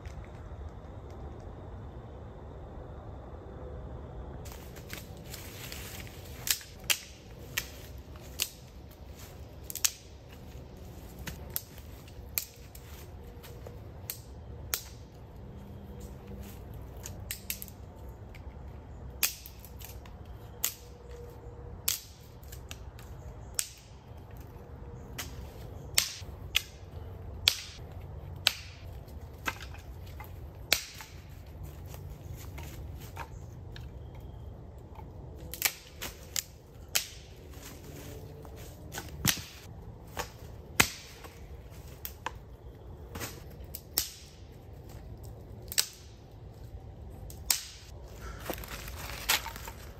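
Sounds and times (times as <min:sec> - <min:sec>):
sharp snaps and clicks: 0:06.4 - 0:08.8, 0:09.6 - 0:10.2, 0:11.3 - 0:12.9, 0:14.0 - 0:15.2, 0:17.0 - 0:18.5, 0:19.1 - 0:21.2, 0:21.8 - 0:24.5, 0:25.1 - 0:29.6, 0:34.8 - 0:37.3, 0:43.4 - 0:46.4, 0:47.2 - 0:48.0.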